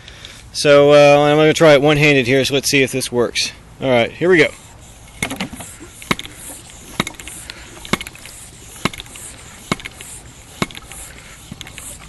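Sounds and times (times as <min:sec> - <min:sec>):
bicycle floor pump strokes: 0:04.4 - 0:12.0
sharp pump click: 0:05.0 - 0:12.0.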